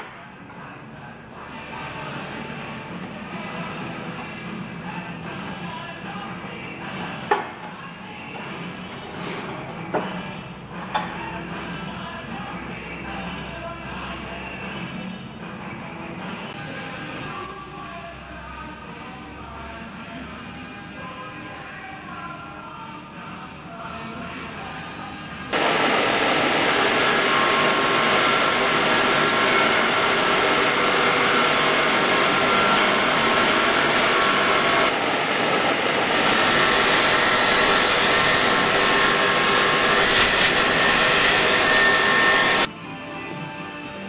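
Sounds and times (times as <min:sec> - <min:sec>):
grinder grinding metal: 0:25.6 - 0:42.7
motor hum: 0:25.6 - 0:42.7.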